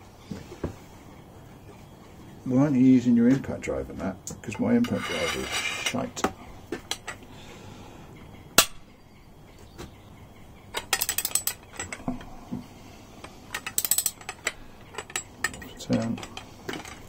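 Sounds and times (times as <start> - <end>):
ratchet wrench clicking: 13.6 - 14.6.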